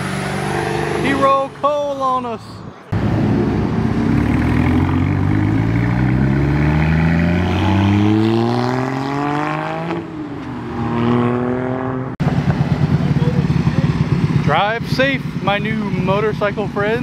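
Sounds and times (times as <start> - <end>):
vehicle engine accelerating hard: 0.0 - 1.6, 2.9 - 17.0.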